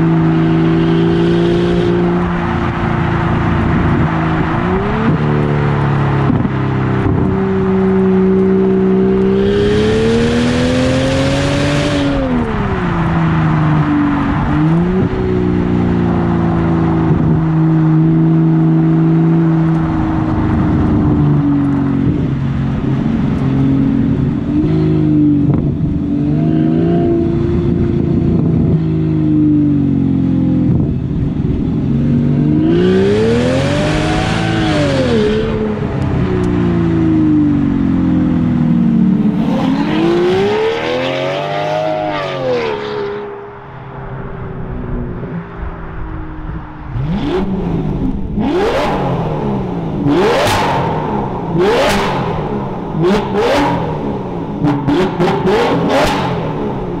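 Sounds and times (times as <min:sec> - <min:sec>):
car engine revving loudly: 0:00.0 - 0:13.2, 0:32.1 - 0:37.9, 0:39.1 - 0:43.6, 0:46.9 - 0:57.0.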